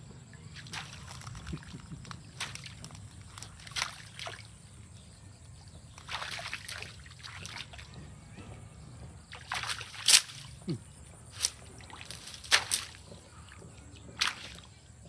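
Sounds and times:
dog splashing in puddle: 0.4s - 4.6s, 6.0s - 7.9s, 9.3s - 10.6s, 11.3s - 14.8s.

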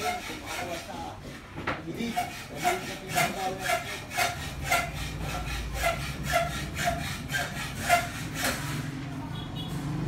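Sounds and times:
fan scraping rub: 2.0s - 9.1s.

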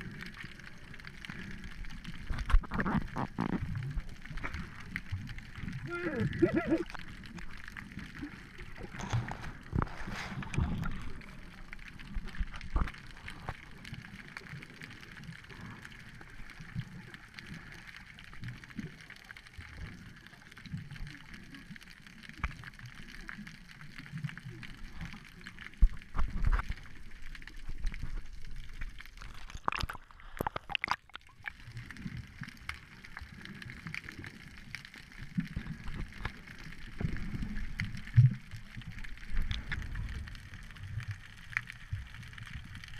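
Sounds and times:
water sloshing and gurgling: 0.0s - 42.9s.

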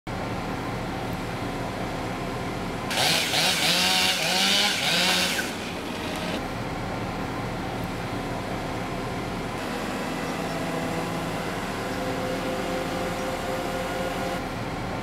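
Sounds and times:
steady engine hum: 0.1s - 15.0s
chainsaw revving: 2.9s - 6.4s.

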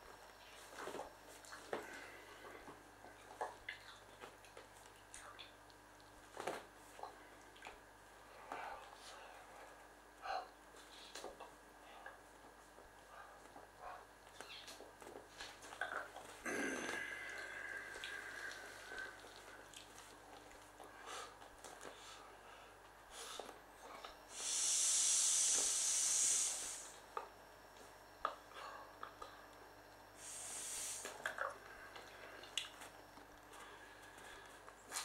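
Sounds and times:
breathy hiss of air at valve: 24.3s - 27.0s, 30.2s - 31.2s.

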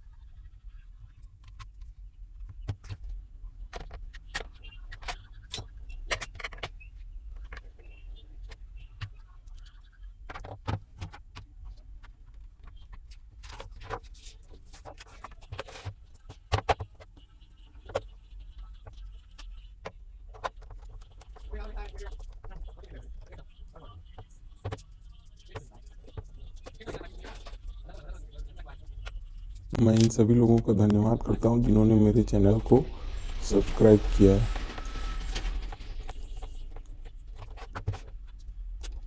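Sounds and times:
low steady hum: 11.5s - 39.0s.

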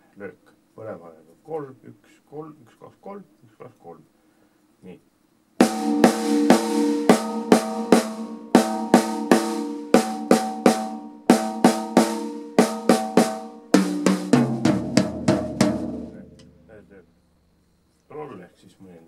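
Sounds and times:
snare and tom drum strokes: 5.6s - 16.6s
deep drums ringing: 5.6s - 16.8s.

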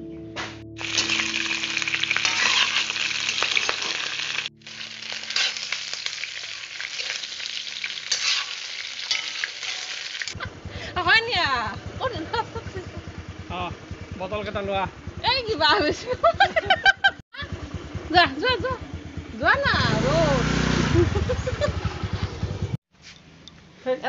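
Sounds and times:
meat sizzling in oil: 0.8s - 10.4s.

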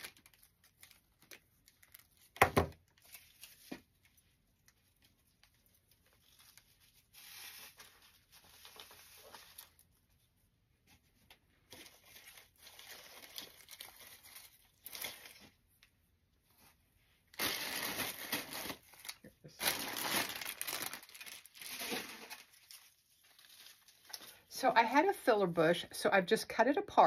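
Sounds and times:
plastic leaves rustling: 5.0s - 10.0s, 17.3s - 24.4s.

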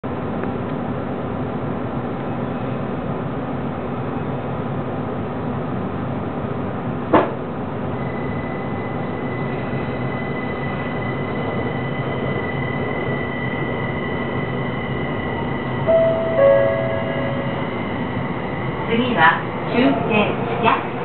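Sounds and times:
train running noise: 0.1s - 21.0s
two-note falling chime: 15.9s - 17.7s
high whine: 15.9s - 18.6s.

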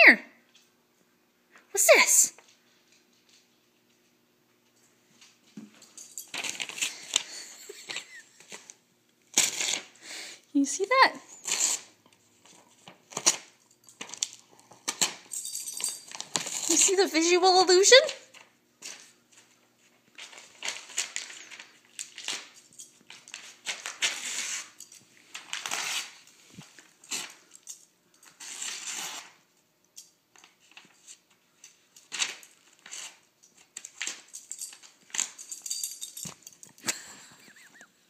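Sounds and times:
dog clawing and tearing paper: 6.4s - 7.4s, 9.3s - 10.0s, 11.4s - 15.3s, 16.1s - 17.0s, 20.1s - 26.3s, 28.3s - 29.4s, 32.0s - 34.3s.

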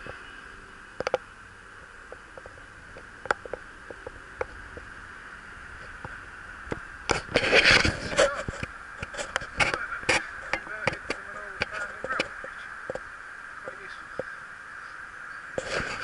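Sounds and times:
bicycle tyres hissing on concrete: 0.0s - 16.0s
bike clicks and rattles: 1.0s - 5.0s, 5.7s - 13.1s
rustling and clicks: 1.0s - 5.0s, 5.8s - 14.4s.

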